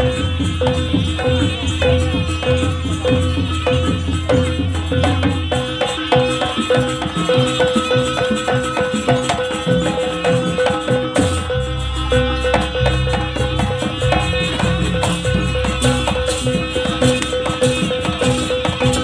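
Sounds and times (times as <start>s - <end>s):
drums: 0.0s - 19.0s
gong-chime striking steady beat: 0.0s - 19.0s
high melody line: 0.0s - 19.0s
rattling percussion: 0.0s - 19.0s.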